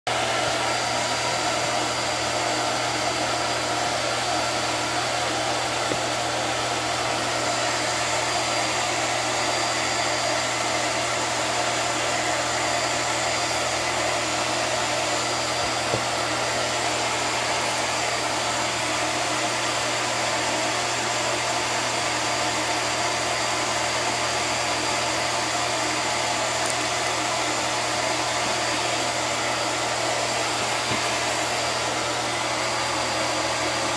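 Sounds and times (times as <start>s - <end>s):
blower motor whirring: 0.1s - 33.9s.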